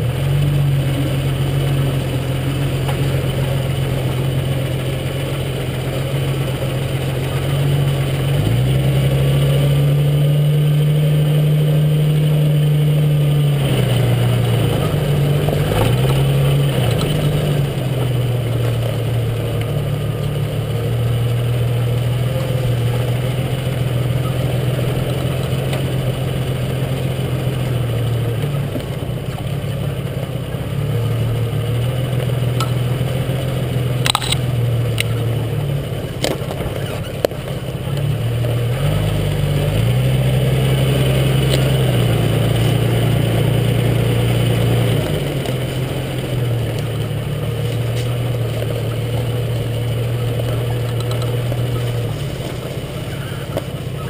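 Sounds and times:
car engine running: 0.0s - 54.0s.

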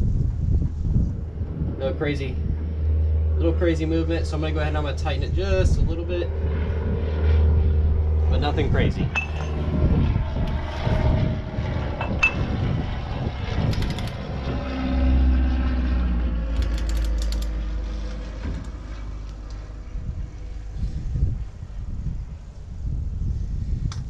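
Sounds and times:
steady low rumble: 0.0s - 24.0s
ratchet wrench clicking: 16.6s - 17.5s.

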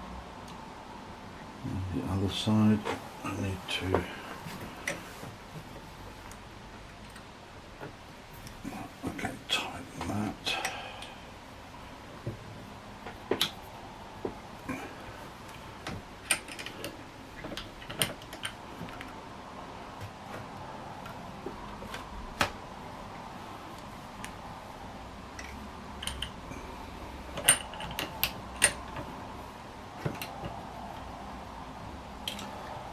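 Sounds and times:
air rifle parts clicking: 25.4s - 26.4s, 27.3s - 29.1s, 32.2s - 32.6s.

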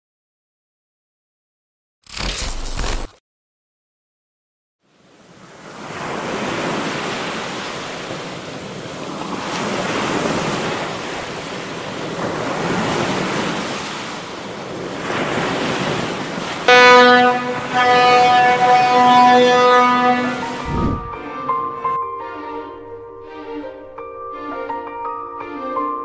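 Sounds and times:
sea surf washing: 5.2s - 21.2s
music with held notes: 16.8s - 26.0s.

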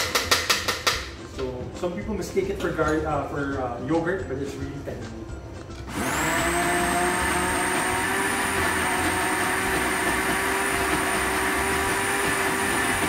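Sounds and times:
blender motor whining: 5.9s - 13.0s.

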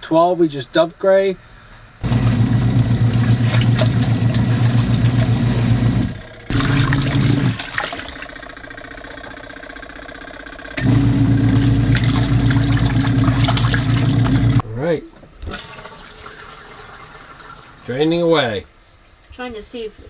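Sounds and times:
water and clothes churning: 2.0s - 5.8s, 6.5s - 8.7s, 11.4s - 14.6s
washing machine motor hum: 2.0s - 14.6s.

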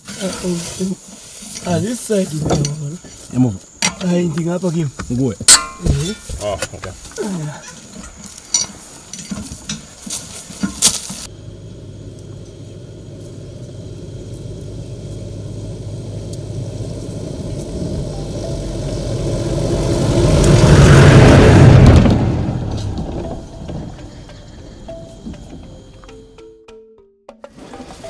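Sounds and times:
truck engine approaching: 11.2s - 27.0s.

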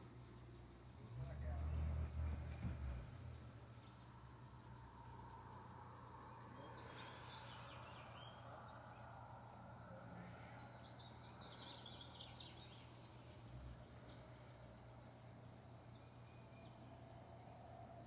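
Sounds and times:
steady low hum: 0.0s - 18.0s
faint bird chirps: 6.0s - 14.3s.

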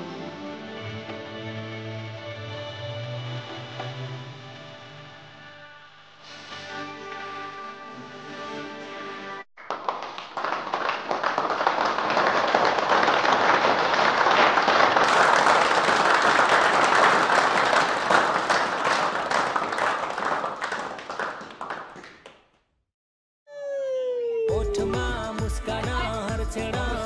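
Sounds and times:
applause: 9.6s - 22.6s.

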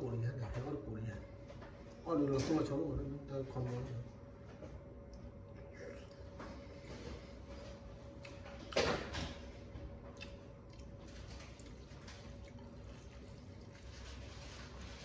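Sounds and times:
wet squishing of noodles: 10.0s - 15.0s.

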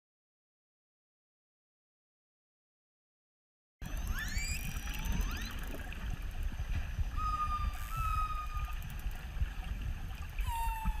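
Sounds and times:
steady low rumble: 3.8s - 11.0s
orca whistles: 7.1s - 8.8s.

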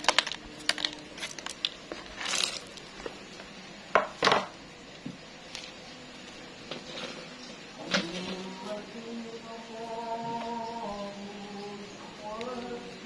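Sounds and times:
crisp chips clattering: 0.0s - 3.2s.

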